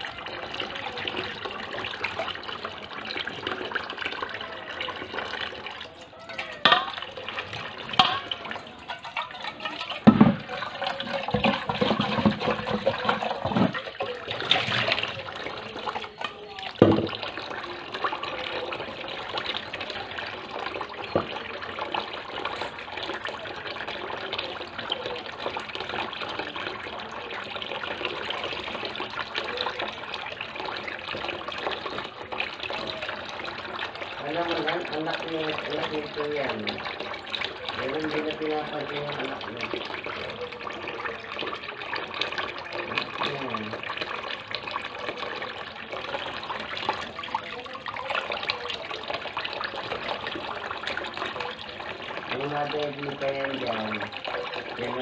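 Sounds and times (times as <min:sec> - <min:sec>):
tap running into basin: 0:00.0 - 0:55.0
water splashing: 0:00.0 - 0:55.0
metal pot knocking in sink: 0:06.2 - 0:15.1, 0:16.8 - 0:17.4, 0:21.0 - 0:22.6.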